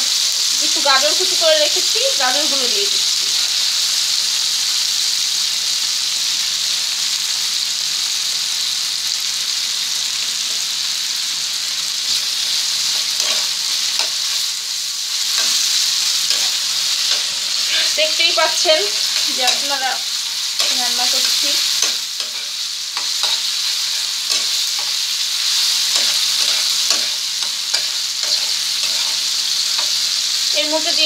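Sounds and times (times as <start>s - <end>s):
vegetables sizzling in oil: 0.0s - 31.0s
metal spatula scraping pan: 12.4s - 14.4s, 15.2s - 30.1s.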